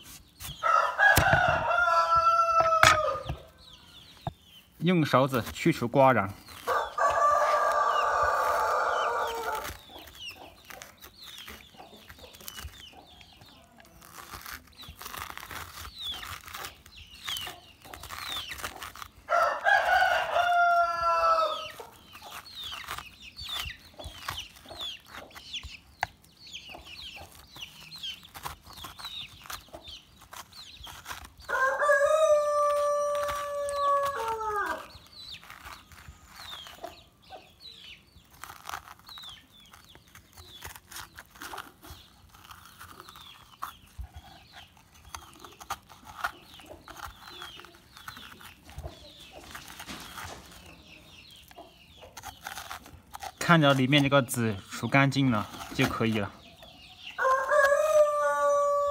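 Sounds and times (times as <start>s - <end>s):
metal spoon scraping pumpkin: 0.0s - 3.5s, 38.3s - 56.4s
rooster crowing: 0.6s - 3.4s, 6.7s - 9.7s, 31.5s - 34.9s, 57.2s - 58.9s.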